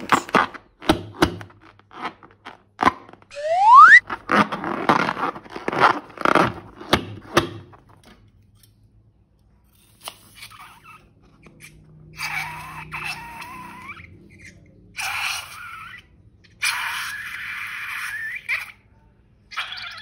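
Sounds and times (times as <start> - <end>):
crinkling: 0.0 - 3.3, 4.0 - 8.0
rising squeal: 3.3 - 4.0.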